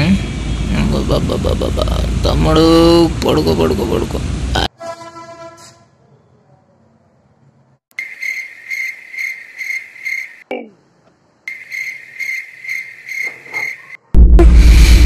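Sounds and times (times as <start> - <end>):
cricket chirping: 7.9 - 10.5, 11.4 - 14.0.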